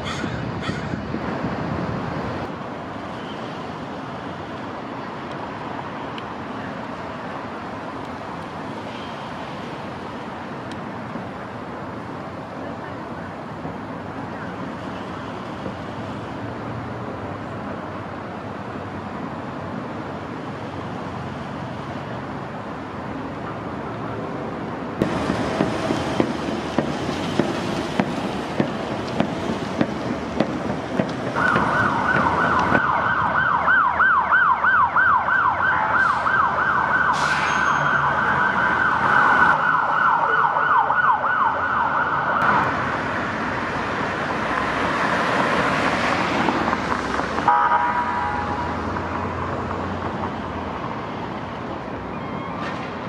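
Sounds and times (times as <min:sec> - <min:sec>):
traffic noise: 0:00.0 - 0:53.0
police siren yelping: 0:31.4 - 0:37.2, 0:37.8 - 0:42.5.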